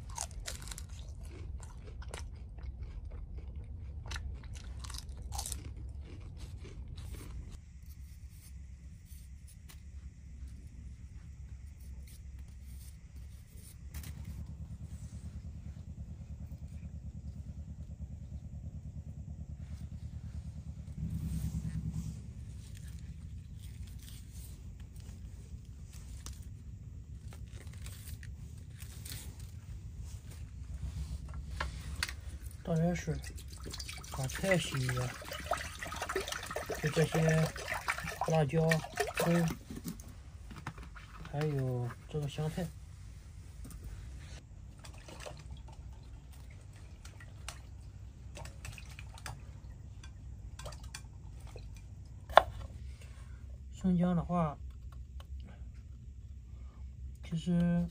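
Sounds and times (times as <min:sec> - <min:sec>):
spring onions tearing: 0:00.0 - 0:02.5, 0:25.9 - 0:30.7
steady low rumble: 0:00.0 - 0:57.9
water splashes and drips: 0:33.0 - 0:39.6, 0:44.7 - 0:49.7, 0:50.6 - 0:51.9.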